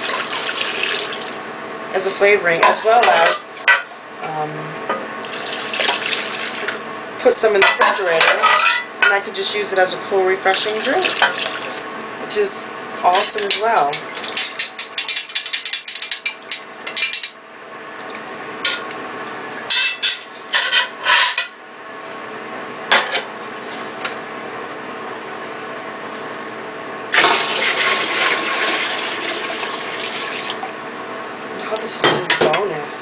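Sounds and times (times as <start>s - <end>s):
water pouring into pot: 0.0s - 1.4s, 5.2s - 6.8s, 11.0s - 11.8s, 27.1s - 30.6s.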